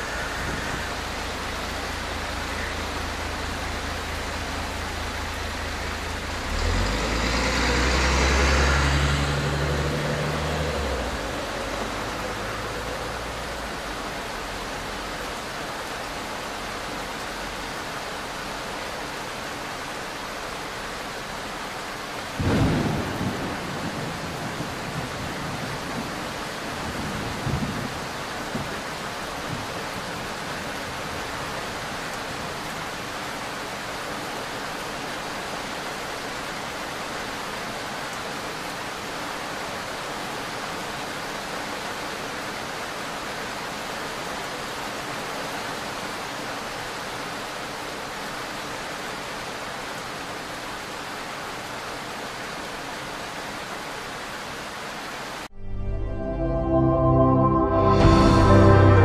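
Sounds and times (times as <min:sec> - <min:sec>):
thunder rumbling: 0:00.0 - 0:13.2, 0:22.4 - 0:28.8
steady rain hiss: 0:00.0 - 0:55.5.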